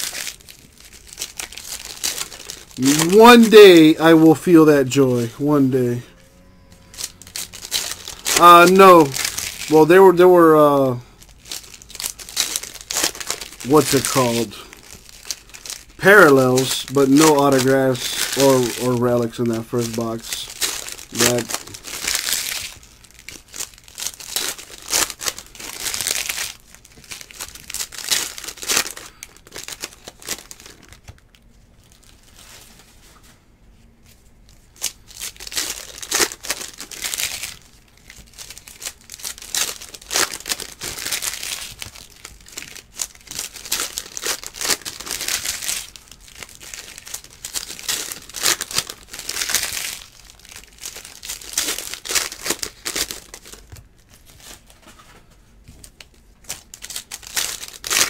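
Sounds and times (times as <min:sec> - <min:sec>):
plastic wrappers tearing and crinkling: 0:00.0 - 0:06.0, 0:06.7 - 0:33.0, 0:34.5 - 0:58.0.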